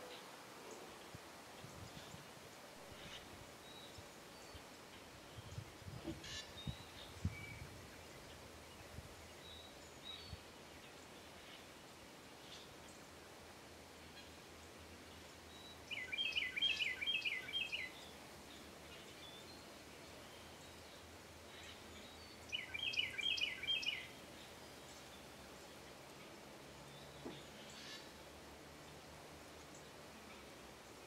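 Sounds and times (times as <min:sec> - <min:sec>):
faint bird chirps: 0:15.5 - 0:18.1, 0:18.9 - 0:25.2
small bird high chirps: 0:22.5 - 0:24.1.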